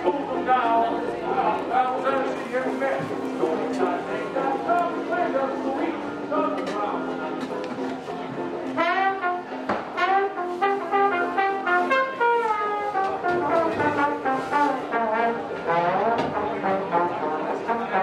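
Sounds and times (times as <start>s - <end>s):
brass instrument melody: 8.0s - 18.0s.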